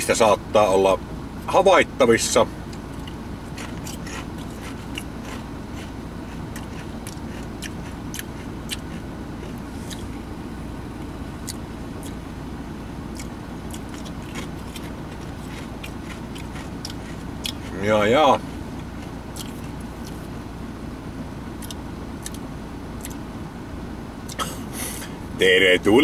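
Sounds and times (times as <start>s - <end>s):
low rumble inside a car: 0.0s - 26.0s
person chewing crunchy crisps: 2.8s - 10.3s, 11.4s - 12.2s, 13.1s - 17.9s, 18.6s - 20.3s, 21.6s - 22.4s.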